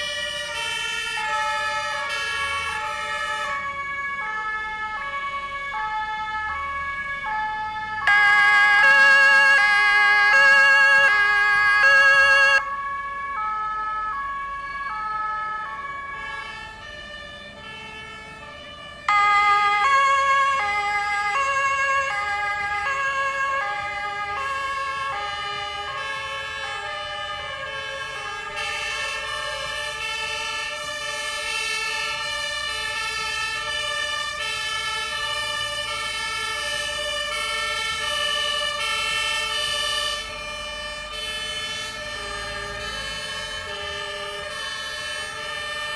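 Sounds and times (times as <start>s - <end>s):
two-tone fire sirens: 0.0s - 45.9s.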